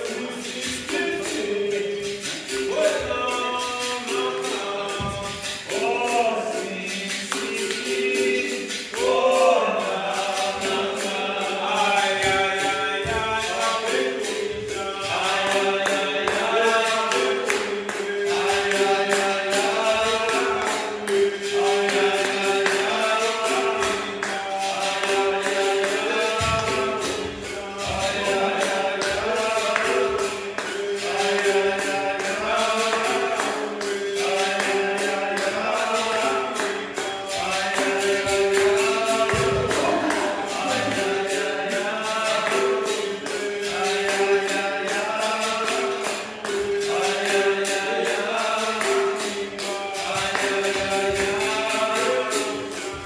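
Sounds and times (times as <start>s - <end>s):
hand claps: 0.0s - 9.6s, 10.4s - 53.0s
berimbau rhythm: 0.0s - 53.0s
group singing: 0.0s - 53.0s.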